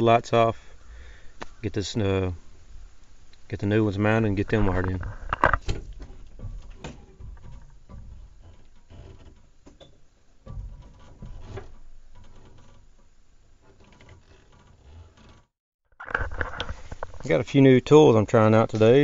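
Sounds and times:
clicks and knocks of handling: 4.6 - 17.3.

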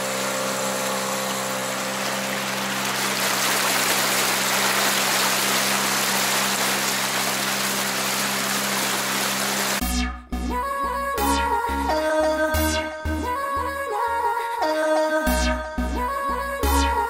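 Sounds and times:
water wash from wake: 0.0 - 9.8
outboard motor running: 0.0 - 13.9.

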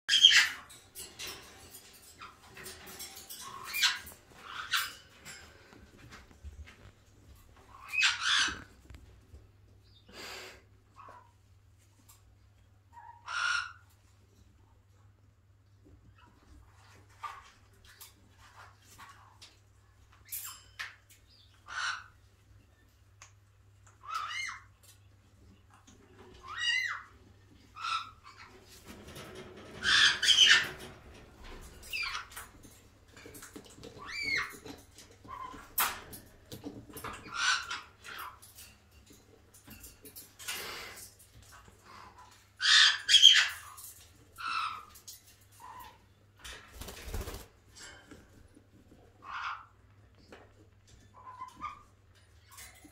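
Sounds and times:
parrot squawking and chirping: 0.1 - 5.6, 7.6 - 8.8, 12.9 - 14.0, 21.3 - 22.3, 23.9 - 24.8, 26.1 - 32.5, 33.9 - 36.0, 37.0 - 38.4, 41.8 - 46.0, 49.2 - 49.8
parrot squawking: 7.7 - 8.7, 21.6 - 22.2, 26.4 - 27.1, 42.6 - 43.8.

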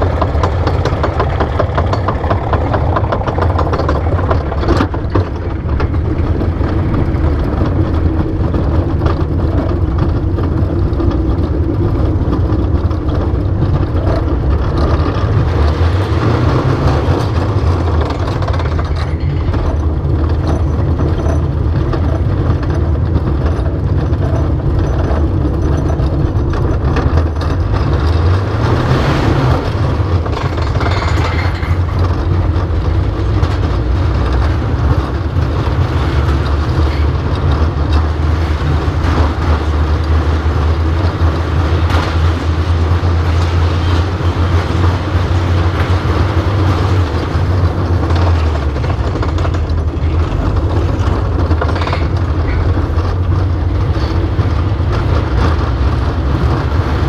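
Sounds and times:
roller coaster train rumbling: 0.0 - 57.0.

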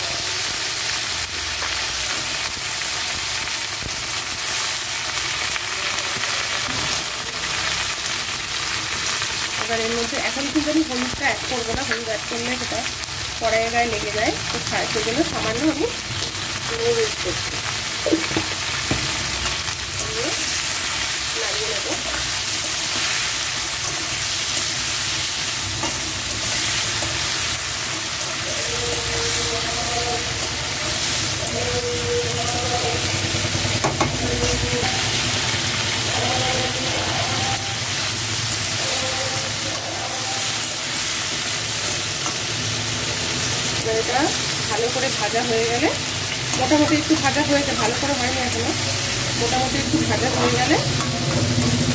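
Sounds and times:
vegetables sizzling in oil: 0.0 - 51.9.

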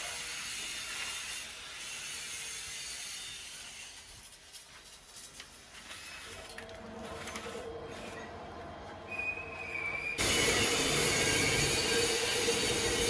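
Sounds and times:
high metal squeal: 9.0 - 13.0
lathe machine hum: 10.2 - 13.0
loud noisy machine: 10.2 - 13.0.

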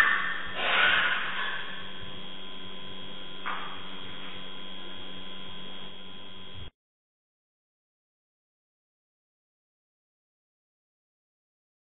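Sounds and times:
electrical hum with hiss: 0.0 - 6.7.

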